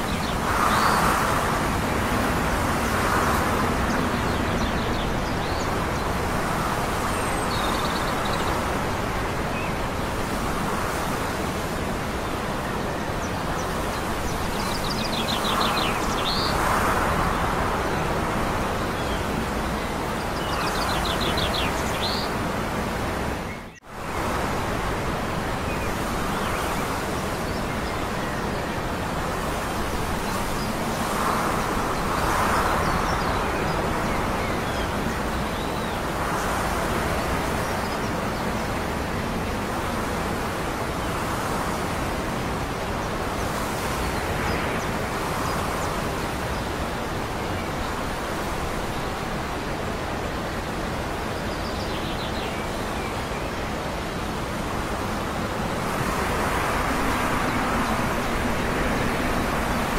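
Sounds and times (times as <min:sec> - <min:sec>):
steady rushing outdoor noise: 0:00.0 - 0:59.9
birds chirping in trills: 0:02.4 - 0:10.0, 0:12.2 - 0:22.6.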